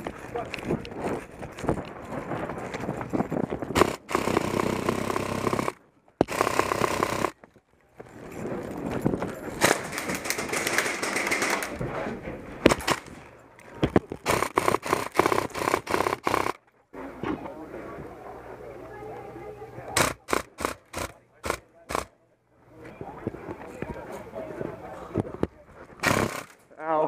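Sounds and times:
footsteps: 0.0s - 4.0s
airsoft rifle firing: 3.8s - 7.4s, 12.6s - 13.2s, 14.2s - 16.6s, 20.0s - 22.1s, 26.0s - 26.6s.

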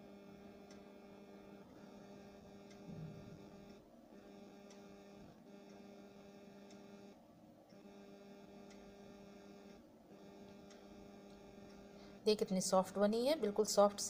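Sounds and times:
faint electrical hum: 0.0s - 14.0s
faint ticks: 4.6s - 4.9s, 6.6s - 6.9s, 8.6s - 8.9s, 10.4s - 11.8s.

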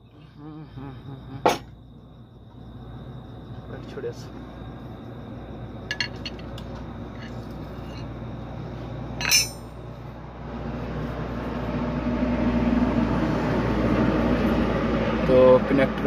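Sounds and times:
steady mechanical noise: 0.0s - 16.0s
metal tool clinking on engine: 5.9s - 6.5s, 9.2s - 9.8s.

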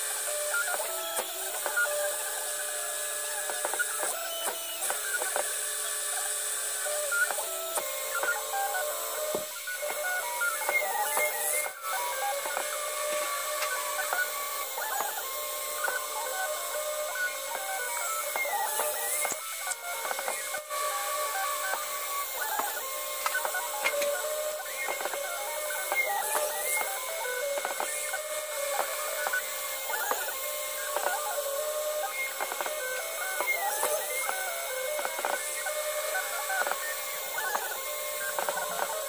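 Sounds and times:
spindle and cutter hiss: 0.0s - 39.0s
stepper motors singing: 0.2s - 39.0s.

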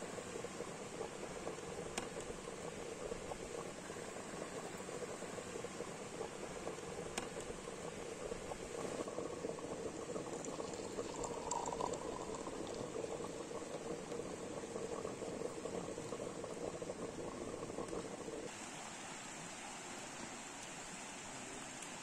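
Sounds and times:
stew bubbling in a pot: 0.0s - 18.5s.

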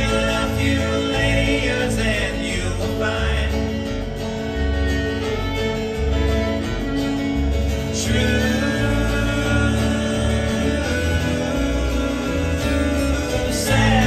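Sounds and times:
voices singing: 0.0s - 4.8s, 7.7s - 14.0s
fiddle: 0.0s - 14.0s
strummed acoustic guitar: 0.0s - 14.0s
upright bass: 0.0s - 14.0s.

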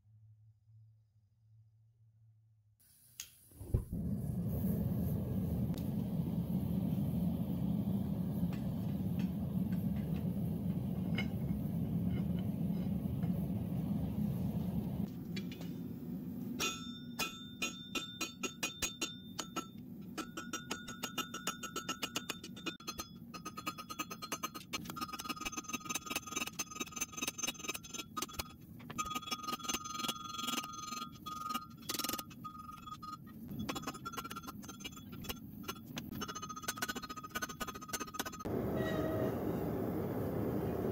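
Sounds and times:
gas forge burner rushing: 3.5s - 15.1s, 38.4s - 40.9s.

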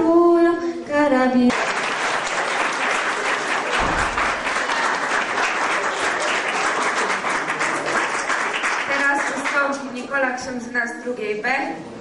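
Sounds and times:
audience applauding: 1.5s - 9.8s
dull bump: 3.8s - 4.6s.

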